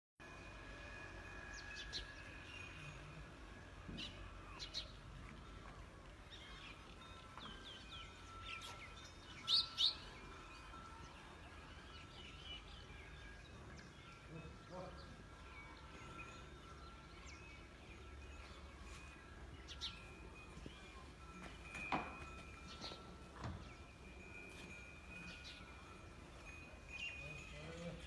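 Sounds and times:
faint outdoor background: 0.2 - 28.0
birds chirping and calling: 6.3 - 28.0.

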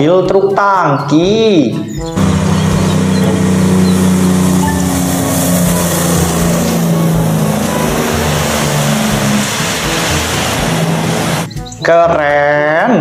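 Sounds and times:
tyres hissing on wet road: 2.2 - 11.5
truck diesel engine passing: 2.2 - 11.6.

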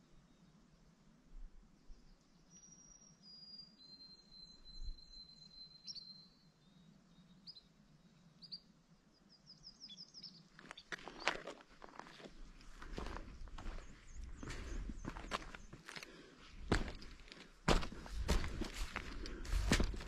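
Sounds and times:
songbird calls: 1.9 - 11.5.

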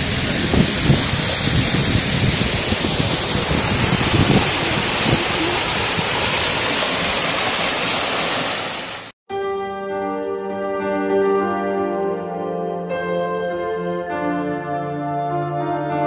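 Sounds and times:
low rumbles: 0.0 - 7.2
waterfall roaring: 0.0 - 9.1.

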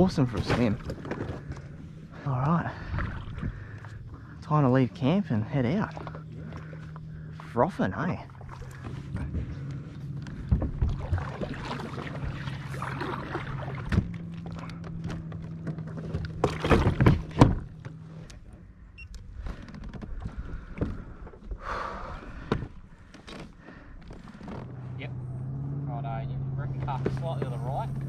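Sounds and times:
paddle splashing in water: 0.0 - 4.4, 5.6 - 7.6, 8.2 - 18.3
steady low hum: 0.0 - 23.2.

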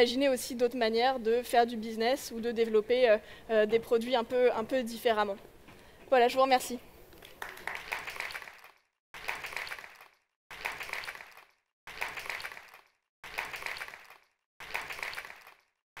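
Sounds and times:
audience applauding: 7.2 - 15.7.

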